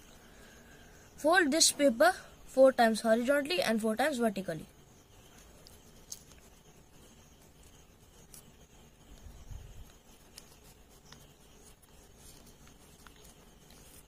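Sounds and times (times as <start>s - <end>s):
paper rustling and crinkling: 8.1s - 14.0s.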